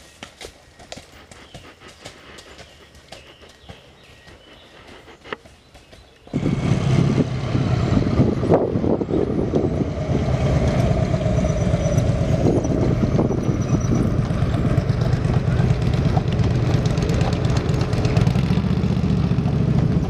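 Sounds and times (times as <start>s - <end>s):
horse hoofbeats on trail: 0.0s - 7.0s, 7.8s - 20.0s
motorcycle trike engine drone: 0.8s - 20.0s.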